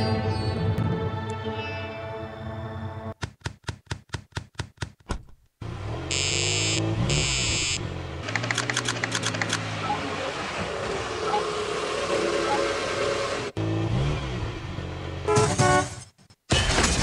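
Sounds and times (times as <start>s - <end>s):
high electronic beeps: 6.1s - 7.8s.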